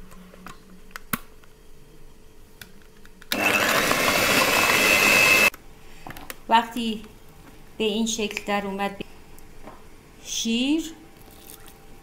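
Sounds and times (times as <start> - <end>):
electric hand mixer whining: 3.3 - 5.5.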